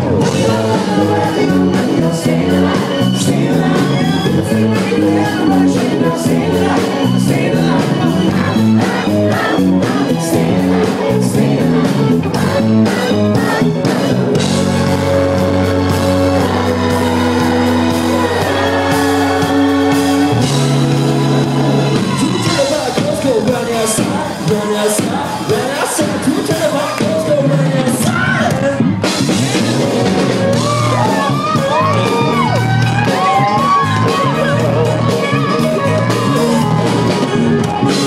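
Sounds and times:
man singing: 0:00.0 - 0:29.8
bass line: 0:00.0 - 0:38.0
crowd noise: 0:00.0 - 0:38.0
drums: 0:00.0 - 0:38.0
live rock band playing: 0:00.0 - 0:38.0.

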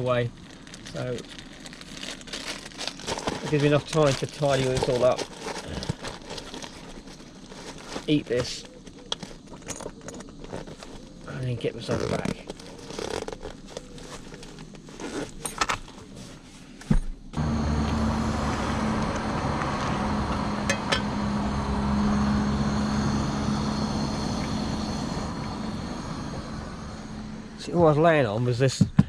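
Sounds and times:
handling rustles and clicks: 0:03.0 - 0:17.1
car engine idling: 0:17.4 - 0:28.3
gas stove burning: 0:17.8 - 0:28.1
metal lid clinking: 0:20.6 - 0:21.1.

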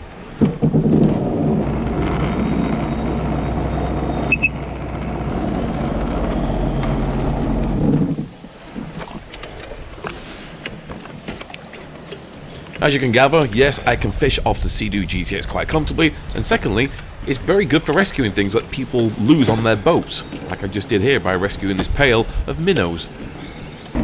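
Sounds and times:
water sounds: 0:00.0 - 0:24.0
jet ski engine running: 0:01.0 - 0:09.0.

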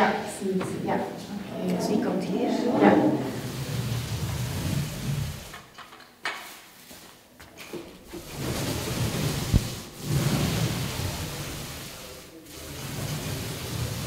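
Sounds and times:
rumbling rustling noise: 0:03.0 - 0:05.6, 0:08.0 - 0:14.0.

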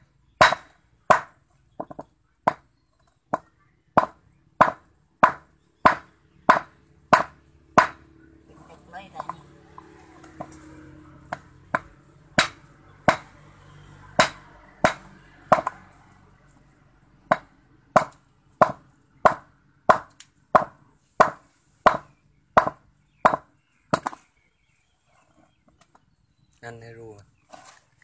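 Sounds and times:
hammer striking rock: 0:00.4 - 0:02.6, 0:03.3 - 0:08.1, 0:11.3 - 0:13.3, 0:14.2 - 0:15.8, 0:17.3 - 0:24.2.

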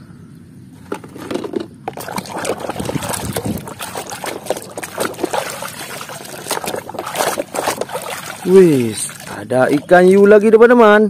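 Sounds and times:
muddy water sloshing in a tub: 0:00.8 - 0:11.0
water drips: 0:01.9 - 0:10.6.

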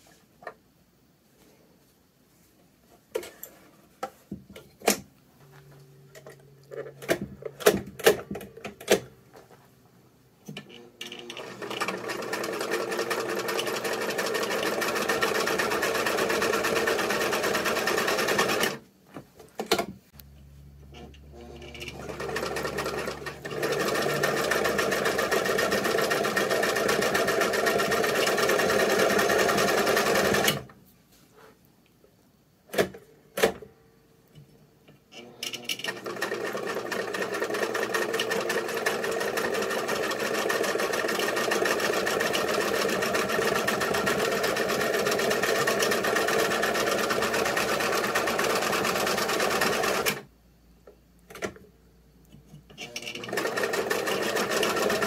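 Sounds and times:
sewing machine stitching: 0:10.6 - 0:18.8, 0:20.9 - 0:30.7, 0:35.1 - 0:50.3, 0:52.7 - 0:55.0.

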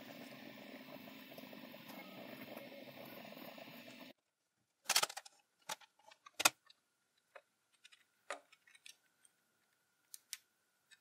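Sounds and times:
plastic gears clacking: 0:04.9 - 0:06.6.

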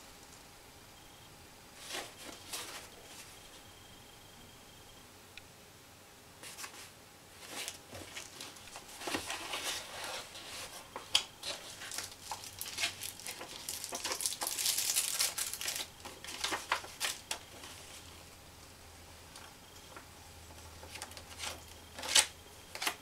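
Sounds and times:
packaging rustling and crinkling: 0:01.8 - 0:03.4, 0:06.4 - 0:18.2, 0:19.3 - 0:23.0.

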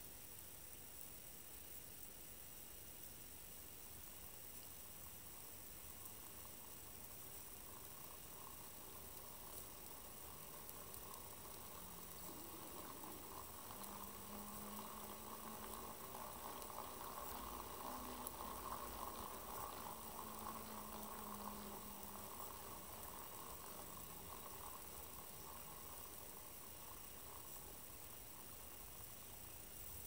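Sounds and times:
plastic gears whirring: 0:06.0 - 0:29.2
stepper motor humming: 0:06.3 - 0:29.2.

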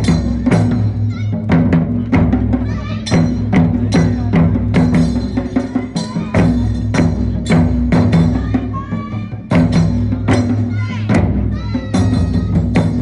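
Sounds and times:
taiko drum ensemble: 0:00.0 - 0:13.0.

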